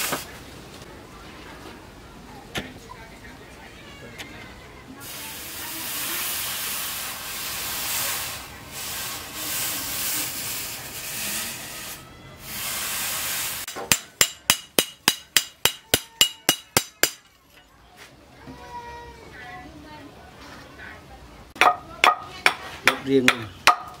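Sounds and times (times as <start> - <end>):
hot steel hissing in water: 5.0 - 13.7
hammer striking steel on anvil: 13.7 - 17.6.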